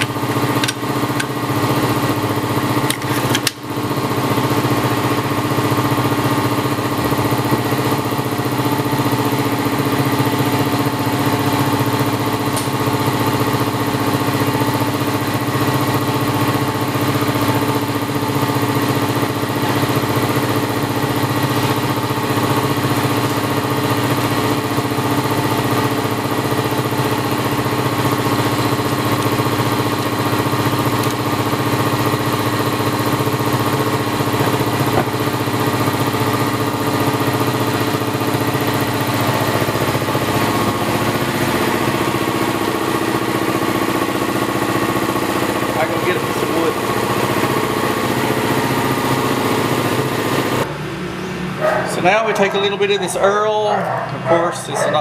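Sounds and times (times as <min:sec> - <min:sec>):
air compressor running: 0:00.0 - 0:55.0.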